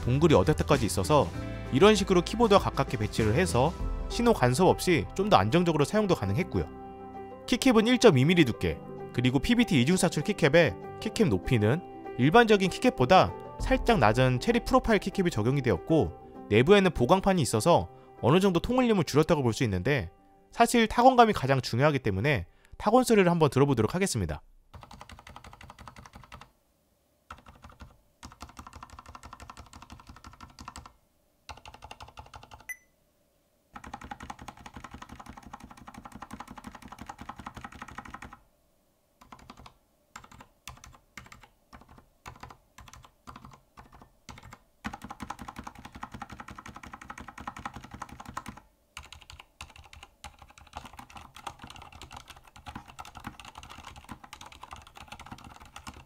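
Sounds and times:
muted keyboard typing: 0:24.7 - 0:26.5, 0:27.3 - 0:32.8, 0:33.8 - 0:38.4, 0:39.2 - 0:56.0.

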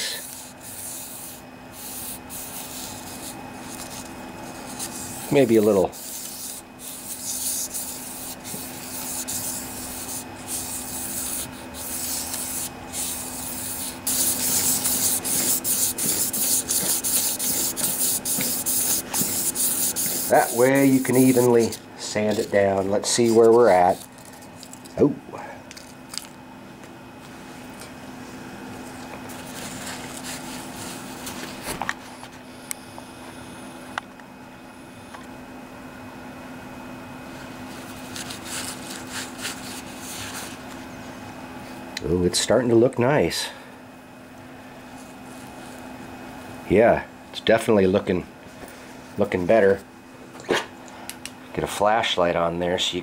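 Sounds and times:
sandpaper rasping on metal: 0:00.0 - 0:24.1, 0:38.0 - 0:40.6
low workshop hum: 0:00.0 - 0:53.0.

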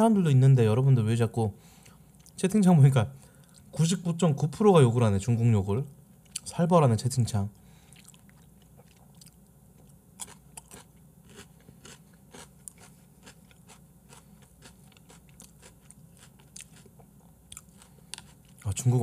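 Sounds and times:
person chewing: 0:01.8 - 0:02.4, 0:06.2 - 0:06.5, 0:07.9 - 0:18.7.

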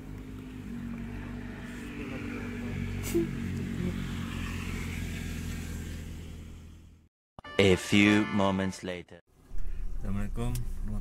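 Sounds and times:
small engine droning: 0:00.0 - 0:07.1.

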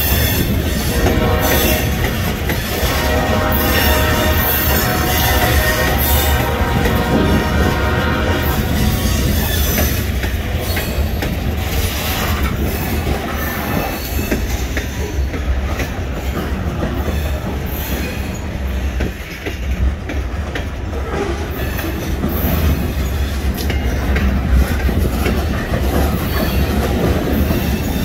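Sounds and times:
train low rumble: 0:00.0 - 0:28.0
wheels clicking over rail joints: 0:04.3 - 0:28.0.

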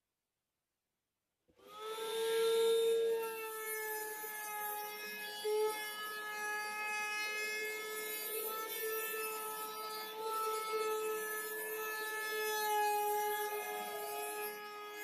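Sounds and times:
router cutting wood rasping: 0:01.6 - 0:15.0
wood router whining: 0:01.6 - 0:15.0.

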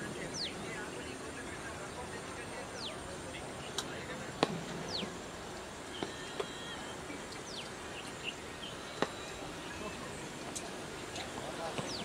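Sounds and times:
steady outdoor hiss: 0:00.0 - 0:12.0
bird whistling calls: 0:04.8 - 0:05.2, 0:05.9 - 0:10.1.

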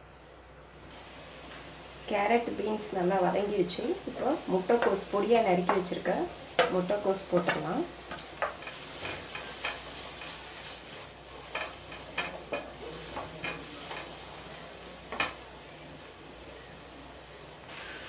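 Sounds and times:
vegetables sizzling: 0:00.9 - 0:18.0
wooden spatula scraping a pan: 0:04.7 - 0:14.3.

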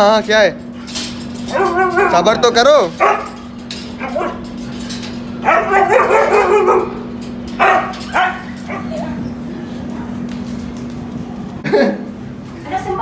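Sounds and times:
dog yelping and barking: 0:01.5 - 0:02.4, 0:03.0 - 0:03.4, 0:04.0 - 0:04.5, 0:05.4 - 0:09.0
dog howling: 0:01.5 - 0:03.3, 0:05.4 - 0:09.2.

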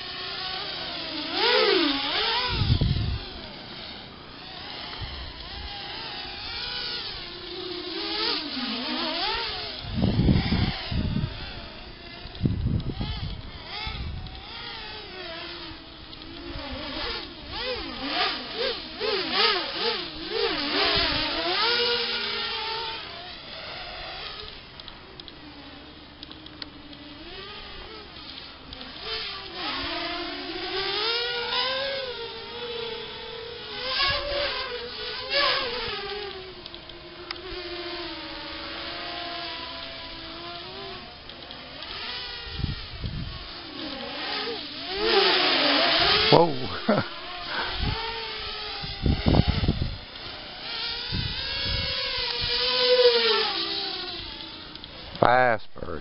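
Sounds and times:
quadcopter motors whining: 0:00.0 - 0:56.0.

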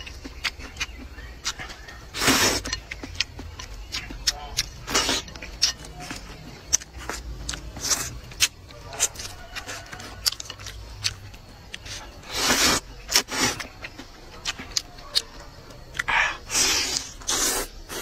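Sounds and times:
chewing: 0:00.0 - 0:18.0
man slurping noodles: 0:16.5 - 0:18.0.

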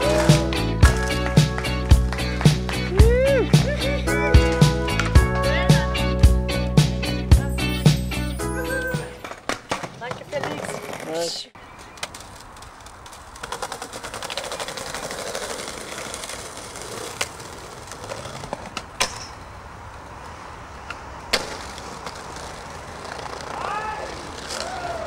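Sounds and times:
skateboard wheels rumbling on bricks: 0:00.0 - 0:05.7, 0:09.2 - 0:19.3, 0:21.0 - 0:25.0
skateboard deck cracking down: 0:09.2 - 0:19.5, 0:20.2 - 0:25.0.

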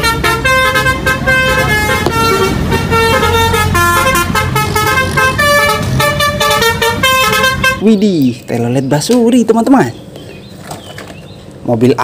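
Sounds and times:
multi-tone air horn tune: 0:00.0 - 0:07.9.

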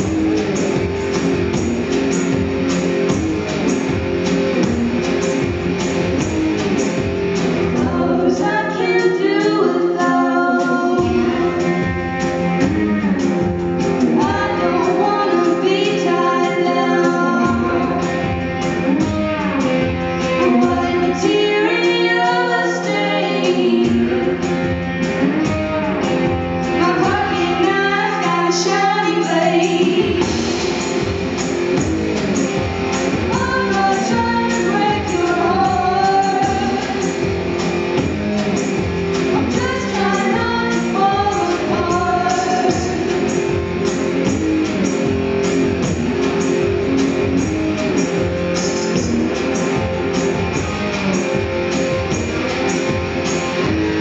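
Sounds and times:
steady drum beat: 0:00.0 - 0:08.6, 0:10.9 - 0:21.7, 0:23.8 - 0:54.0
women singing: 0:07.8 - 0:11.5, 0:14.2 - 0:18.0, 0:20.5 - 0:24.2, 0:26.8 - 0:30.4, 0:33.3 - 0:37.1, 0:39.3 - 0:43.3.

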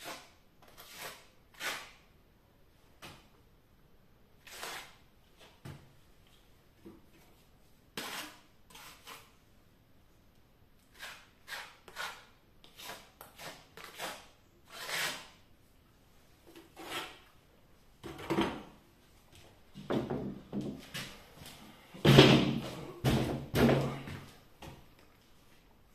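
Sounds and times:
trowel scraping plaster: 0:00.0 - 0:02.0, 0:04.4 - 0:05.6, 0:08.0 - 0:09.4, 0:10.8 - 0:15.4, 0:16.6 - 0:17.3.

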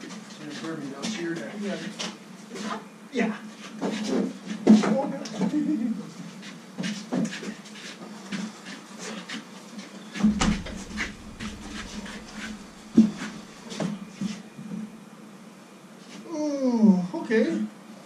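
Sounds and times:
steady low hum: 0:10.2 - 0:13.8
wooden frame knocking and scraping: 0:10.3 - 0:13.6.

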